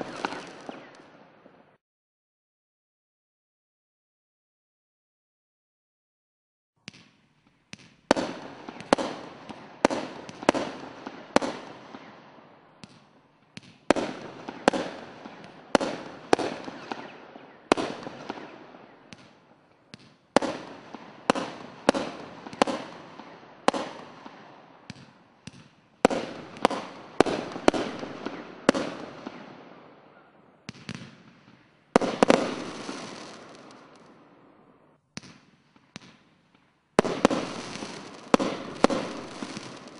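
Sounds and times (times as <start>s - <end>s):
firework bangs: 0.0s - 1.2s, 7.8s - 12.2s, 12.8s - 36.3s, 37.0s - 39.9s.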